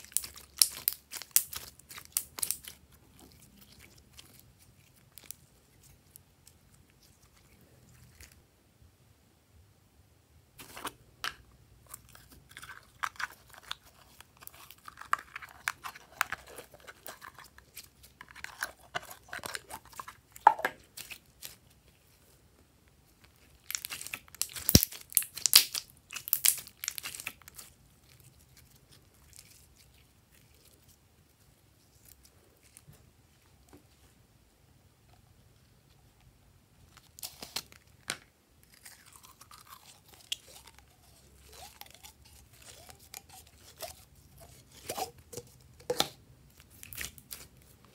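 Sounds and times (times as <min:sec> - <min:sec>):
hands squishing sticky slime: 0:00.0 - 0:08.4, 0:11.9 - 0:21.8, 0:23.2 - 0:31.0, 0:38.8 - 0:47.7.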